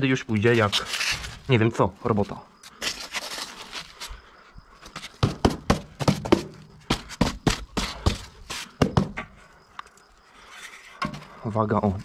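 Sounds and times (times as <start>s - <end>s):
taps and knocks on insulation board: 5.1s - 9.4s.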